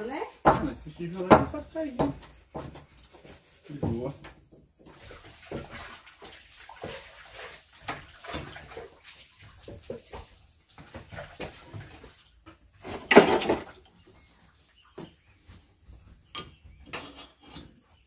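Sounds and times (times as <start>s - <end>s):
water splashing: 4.9s - 14.0s.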